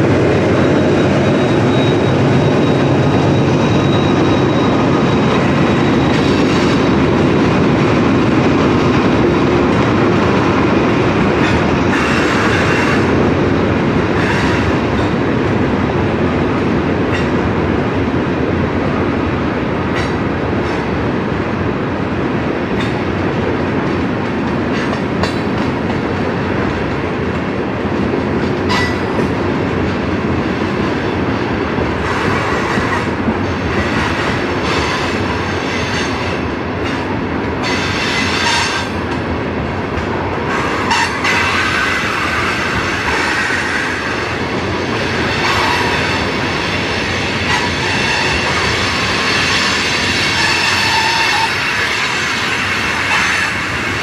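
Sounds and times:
rail joint clicks: 0.0 - 18.3, 18.9 - 21.6, 22.4 - 54.0
steel wheels rumbling on rail: 0.0 - 54.0
wheel flange squeal: 0.6 - 6.9.

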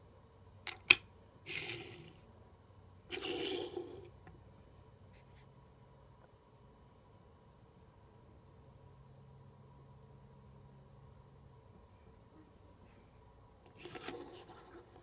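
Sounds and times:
toy car scraping on surface: 1.5 - 2.2, 3.1 - 4.2, 13.7 - 15.0.

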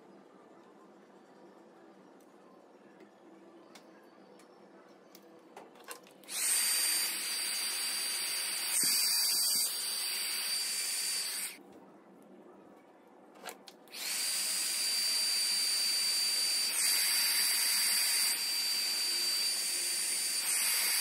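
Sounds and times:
hot air gun blowing: 6.3 - 11.6, 13.9 - 21.0.

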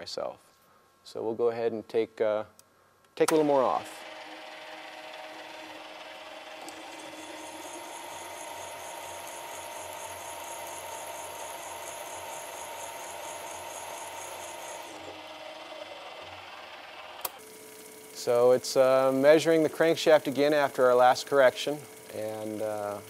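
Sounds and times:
drill press motor hum: 3.3 - 23.0
high pulsing metal cutting: 3.8 - 17.0.

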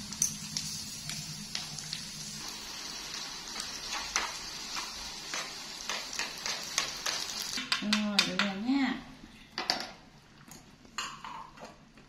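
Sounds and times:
corn sizzling in a pan: 0.0 - 8.0.

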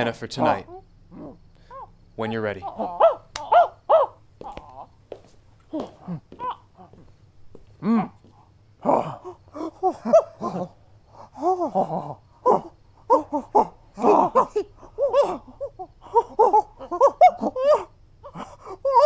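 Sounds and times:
people making monkey noises: 0.0 - 4.9, 8.8 - 19.0.

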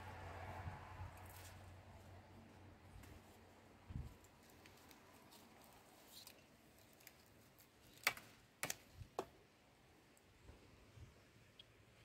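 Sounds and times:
grapes snapping off a vine: 8.0 - 9.3.

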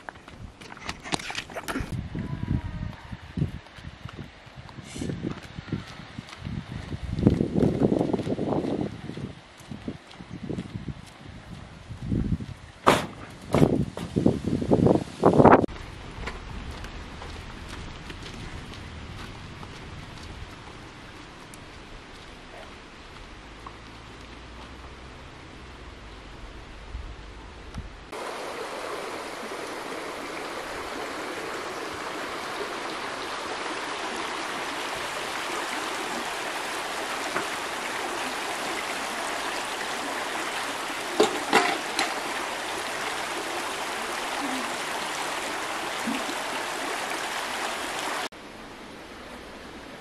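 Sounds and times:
stream running over stones: 0.0 - 50.0
sharp knocks: 12.8 - 13.7.

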